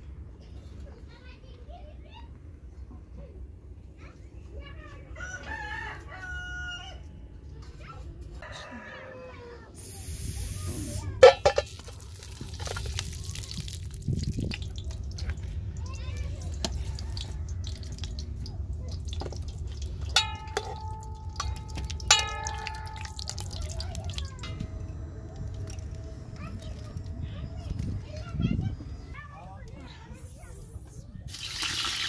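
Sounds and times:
steady low rumble: 9.8 - 31.3
metal strikes ringing: 20.0 - 27.2.

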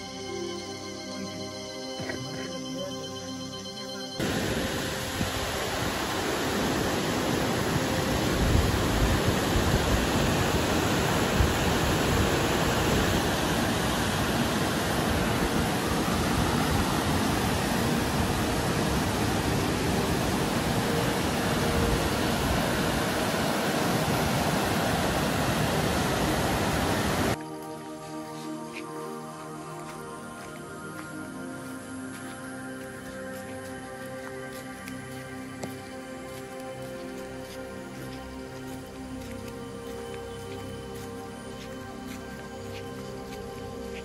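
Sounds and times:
river rushing through rapids: 4.2 - 28.2.

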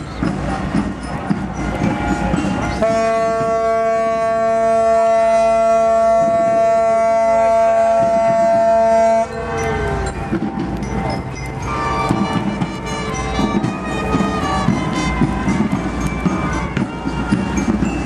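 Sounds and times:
crowd noise: 0.0 - 18.0
ship's horn blast: 2.8 - 10.4.

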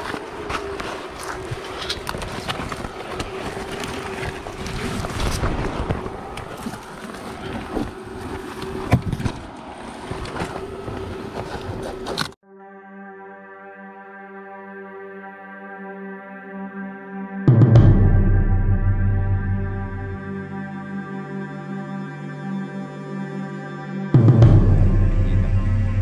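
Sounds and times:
branches and leaves rustling: 0.0 - 12.4
wind-like noise: 0.0 - 12.4
calm music: 12.4 - 26.0.

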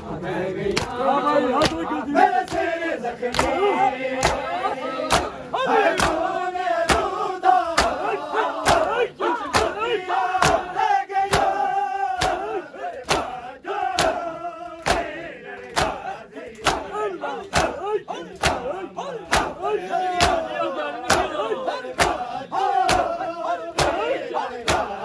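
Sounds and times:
crowd chanting and shouting: 0.0 - 25.0
hands slapping chests: 0.7 - 1.0, 1.6 - 2.7, 3.3 - 3.6, 4.2 - 4.4, 5.1 - 5.4, 6.0 - 6.3, 6.9 - 9.8, 10.4 - 10.7, 11.3 - 11.6, 12.2 - 14.2, 14.8 - 16.9, 17.5 - 17.8, 18.4 - 18.7, 19.3 - 19.6, 20.2 - 20.5, 21.1 - 21.3, 22.0 - 22.2, 22.8 - 23.2, 23.8 - 25.0.

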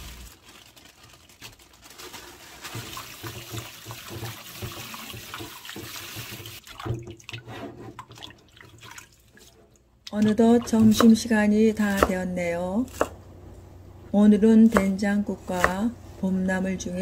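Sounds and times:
tap water splashing into sink: 2.7 - 9.5.

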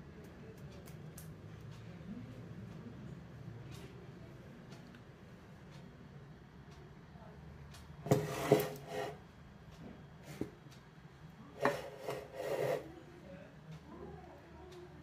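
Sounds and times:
rubbing and scraping: 8.1 - 9.2, 11.6 - 12.9.

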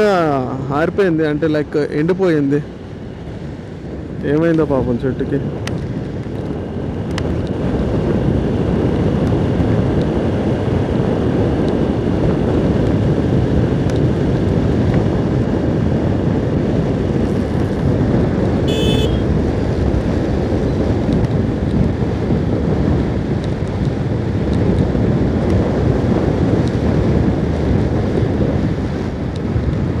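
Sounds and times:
motorcycle engine and road noise: 0.0 - 30.0
wind buffeting microphone: 0.0 - 30.0
short beep: 18.7 - 19.2.

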